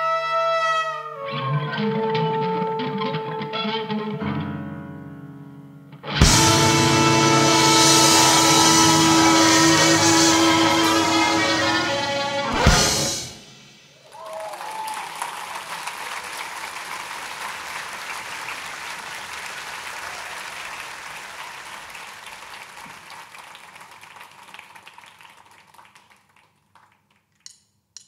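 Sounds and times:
music: 0.0 - 13.8
audience applause: 6.2 - 13.1, 14.0 - 27.2.

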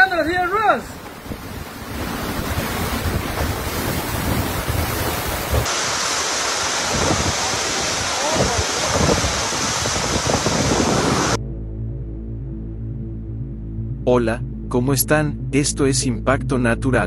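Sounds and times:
heavy rain: 0.0 - 11.4
strong gusting wind: 0.0 - 11.4
wind buffeting microphone: 1.0 - 5.7, 6.8 - 11.4.

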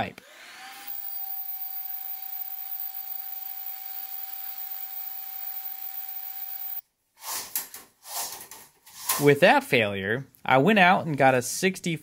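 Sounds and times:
handheld vacuum cleaner running: 0.2 - 6.8.

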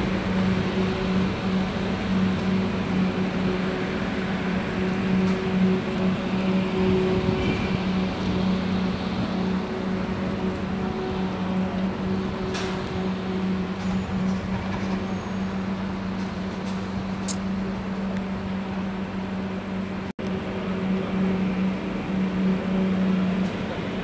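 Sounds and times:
engine running steadily: 0.0 - 24.0.

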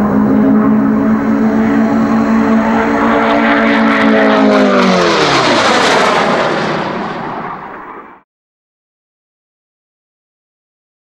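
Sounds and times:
jet aircraft flying past: 0.0 - 8.2.

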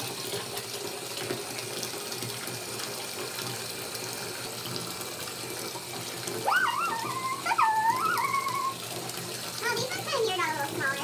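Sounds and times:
water pouring into bathtub: 0.0 - 11.0
voice rising in pitch: 6.4 - 8.8.

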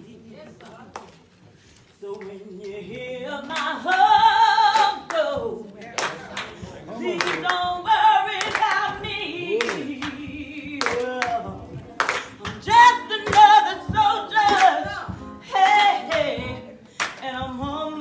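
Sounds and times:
sharp handclaps: 6.0 - 7.6, 9.6 - 10.2, 10.8 - 11.4, 12.0 - 13.5
lead and backing voices singing: 6.6 - 18.0.

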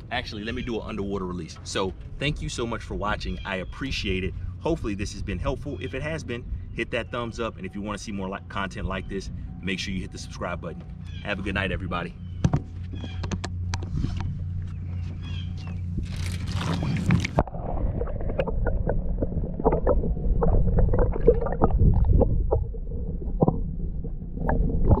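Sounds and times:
underwater sloshing and gurgling: 0.0 - 11.2, 12.2 - 25.0
water splashing: 16.0 - 25.0.

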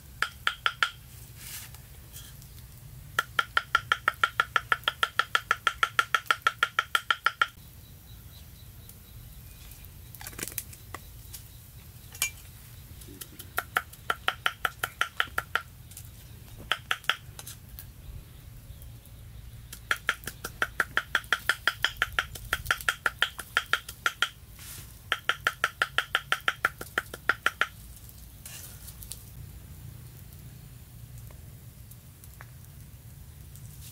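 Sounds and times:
cleaver chopping on wooden block: 19.7 - 24.4.

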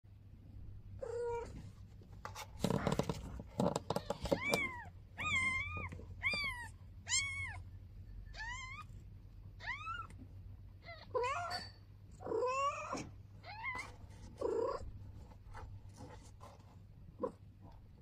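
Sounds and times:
cat shifting on cardboard: 2.0 - 4.8.

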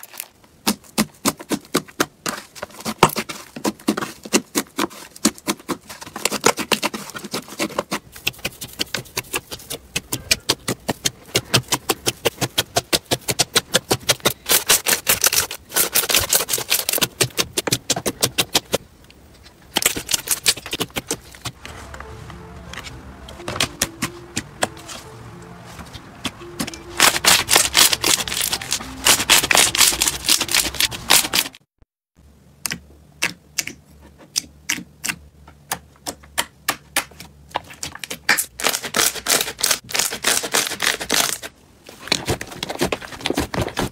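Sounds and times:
slime clicking and crackling: 2.9 - 18.8, 19.7 - 21.6, 27.0 - 31.6.

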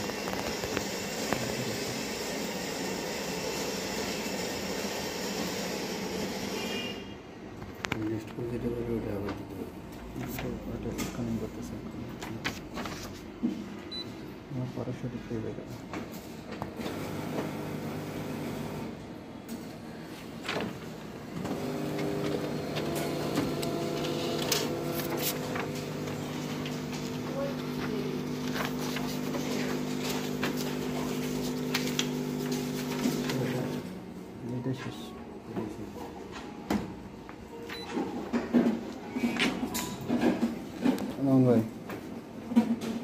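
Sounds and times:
photocopier whirring hiss: 0.0 - 7.0, 16.8 - 19.0, 20.0 - 34.0
copier mechanical hum: 0.0 - 43.0
copier click: 21.4 - 33.8.

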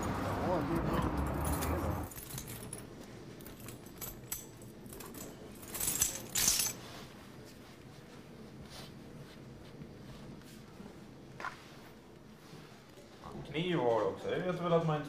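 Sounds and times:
keys jangling on a floor: 0.0 - 7.1.

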